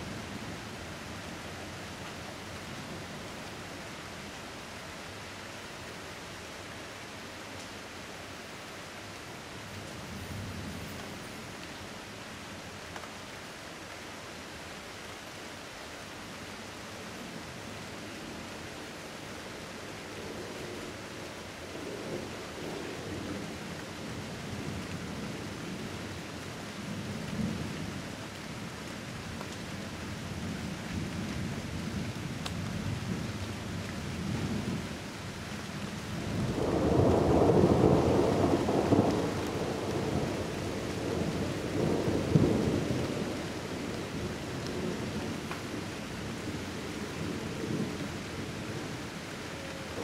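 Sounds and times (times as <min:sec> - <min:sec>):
rain hissing: 0:07.2 - 0:50.0
thunder rumbling: 0:36.2 - 0:45.5.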